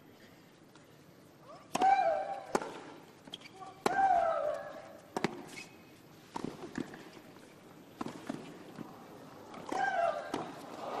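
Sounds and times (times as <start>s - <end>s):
footfalls and scuffs on court: 2.6s - 11.0s
racket striking tennis ball: 3.8s - 5.6s.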